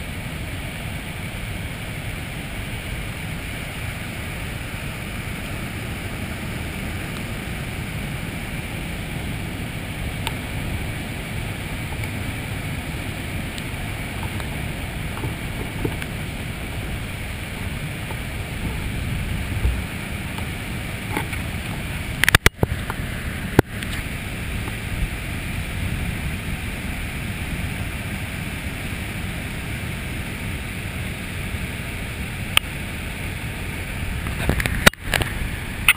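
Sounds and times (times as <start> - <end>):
waterfall rushing: 0.0 - 35.9.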